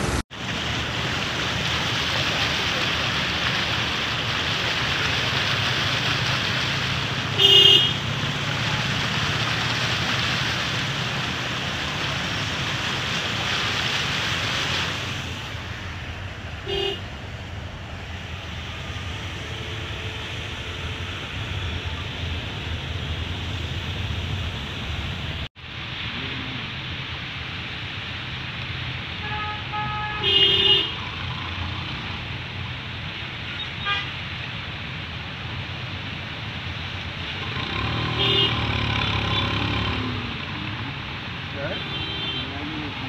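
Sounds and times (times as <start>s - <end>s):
road noise: 0.0s - 43.0s
tyres rushing through water: 0.0s - 43.0s
car horn toots: 7.4s - 8.0s.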